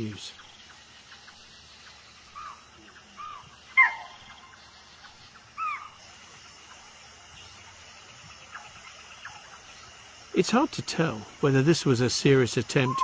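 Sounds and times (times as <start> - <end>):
faint hiss of night ambience: 0.0 - 13.0
animal calling: 2.2 - 6.1, 12.7 - 13.0.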